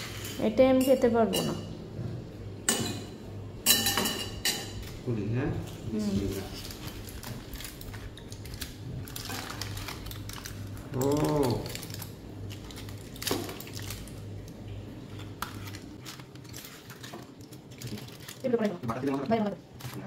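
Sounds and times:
steady low hum: 0.0 - 20.0
aluminium foil crinkling: 5.9 - 20.0.

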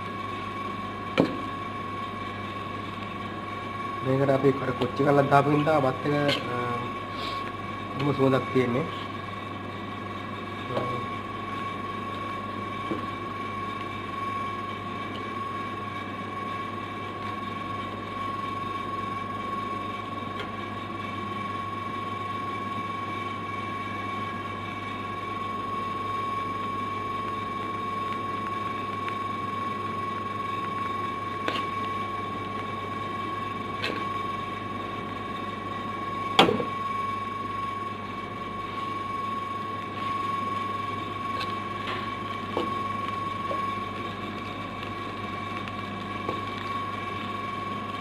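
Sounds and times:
machine hum: 0.0 - 48.0
high whine: 3.6 - 9.1.

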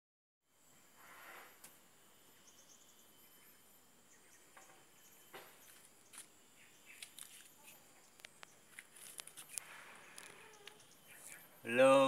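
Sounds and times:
high insect hum: 0.5 - 12.0
light chirps: 0.6 - 12.0
soft rustles: 7.0 - 11.4.

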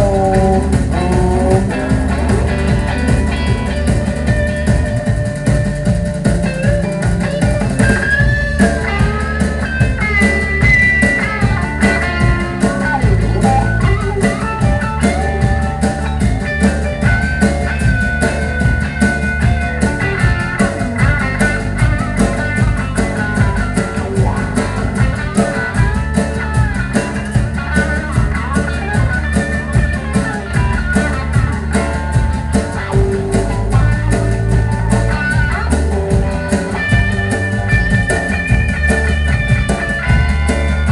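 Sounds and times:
bass guitar: 0.0 - 40.9
drum kit beat: 0.0 - 40.9
electric guitar lead: 0.0 - 40.9.

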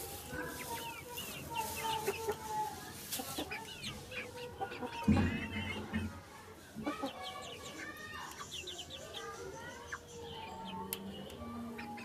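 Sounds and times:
hens clucking: 0.0 - 12.0.

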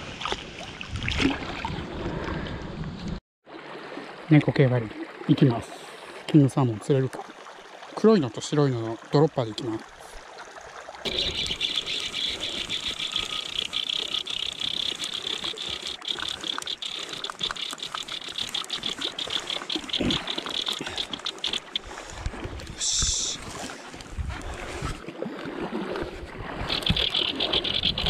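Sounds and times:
fishing reel drag buzzing: 11.1 - 22.0, 26.6 - 28.0.

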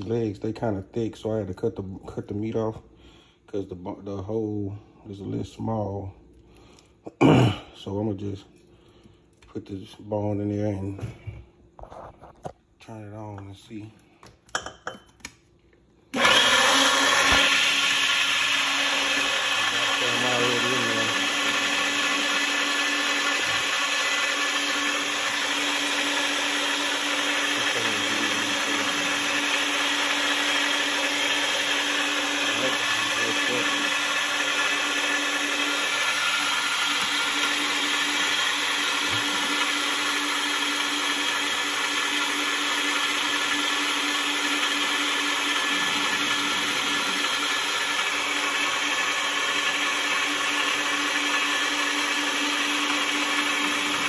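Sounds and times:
electric meat grinder humming: 16.1 - 54.0.

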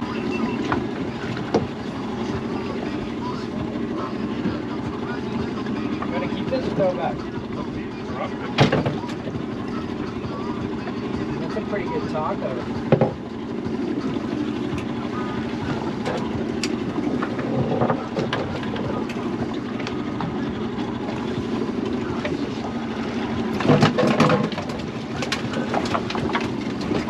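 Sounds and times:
boat engine rumble: 0.0 - 27.0
knocks and clatter: 23.5 - 27.0.

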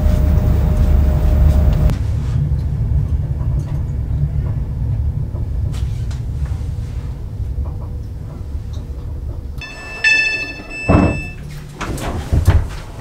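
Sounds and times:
train carriage rumble: 0.0 - 13.0
door mechanism knock: 9.6 - 11.4
door warning beeps: 9.6 - 11.6.

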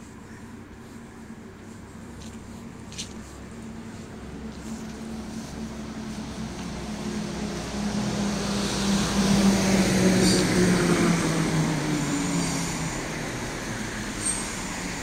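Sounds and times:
street traffic: 0.0 - 15.0
vehicle passing close by: 3.6 - 15.0.

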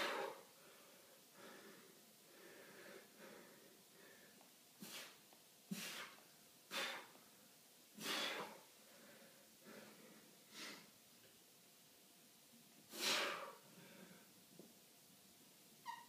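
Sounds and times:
man breathing softly: 0.0 - 7.2, 8.0 - 10.9, 12.9 - 14.4.

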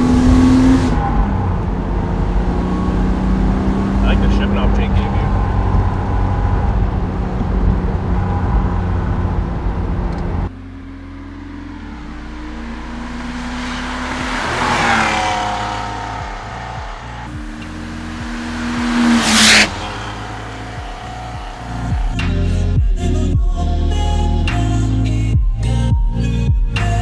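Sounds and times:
car engine drone from inside: 0.0 - 22.8
car passing by: 11.6 - 22.6.

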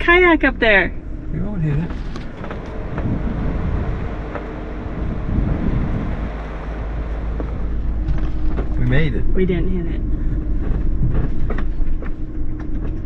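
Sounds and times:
van engine and tyres rumbling: 0.0 - 13.0
faint knocks and rattles: 7.1 - 9.0.

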